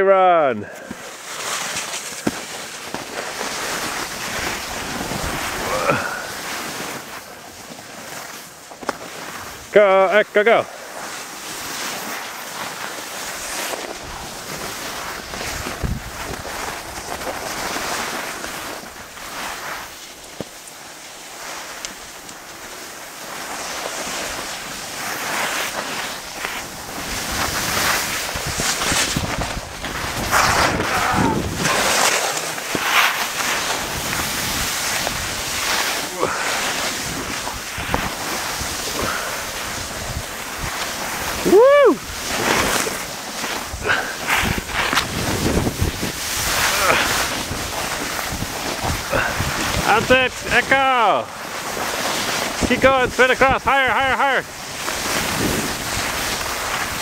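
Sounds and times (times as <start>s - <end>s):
skis sliding over snow: 0.0s - 57.0s
wind rushing over microphone: 15.2s - 17.0s, 26.8s - 33.0s, 43.6s - 50.8s, 54.5s - 57.0s.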